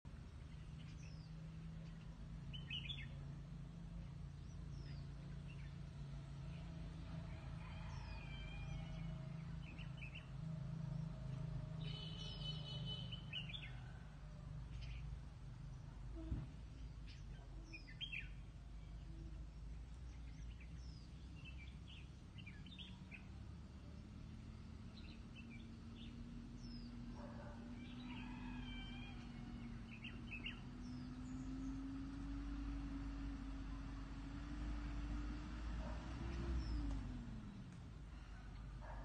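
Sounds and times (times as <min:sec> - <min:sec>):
birds chirping and calling: 0:00.4 - 0:03.2, 0:07.6 - 0:11.1, 0:11.8 - 0:13.8, 0:16.6 - 0:23.4, 0:24.9 - 0:33.2.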